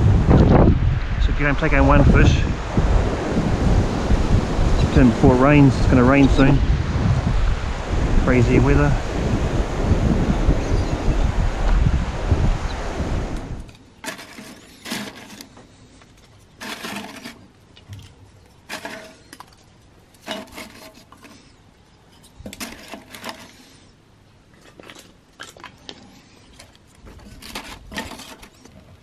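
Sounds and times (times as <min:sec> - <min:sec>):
wood clattering on metal: 0:13.6 - 0:21.5, 0:22.1 - 0:23.7, 0:24.5 - 0:29.0.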